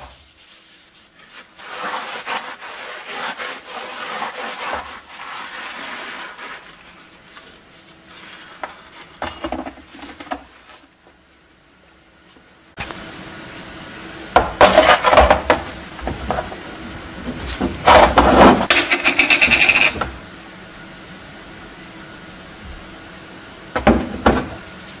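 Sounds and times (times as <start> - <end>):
wet sponge scrubbing helmet: 0.0 - 9.2.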